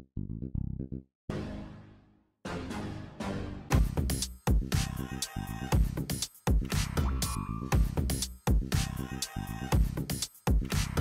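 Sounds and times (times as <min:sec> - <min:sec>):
electronic music: 0:02.5 - 0:11.0.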